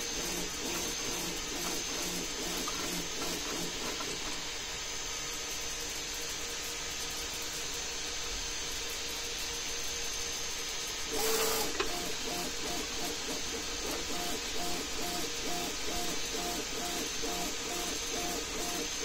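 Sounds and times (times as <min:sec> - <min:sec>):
cooling fan hiss: 0:00.0 - 0:19.0.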